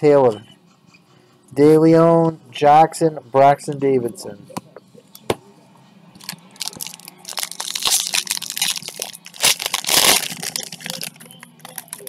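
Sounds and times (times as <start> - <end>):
foil wrapper crinkling and tearing: 6.2 - 12.0.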